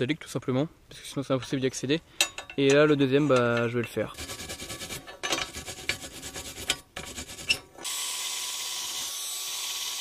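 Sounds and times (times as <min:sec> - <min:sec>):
wire brush scrubbing metal: 0:03.8 - 0:07.6.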